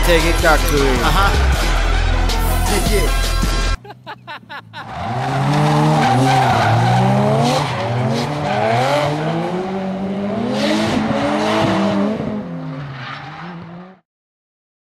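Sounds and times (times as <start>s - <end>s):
car engines revving: 0.0s - 14.0s
tyres squealing: 4.7s - 8.8s.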